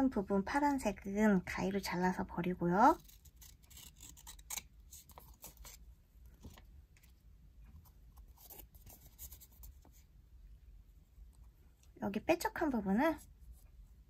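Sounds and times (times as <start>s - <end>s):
scissors snipping paper: 2.9s - 5.8s.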